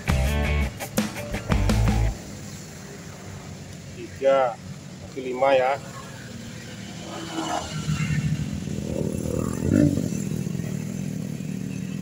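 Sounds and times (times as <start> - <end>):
vehicle engine passing: 5.6 - 12.0.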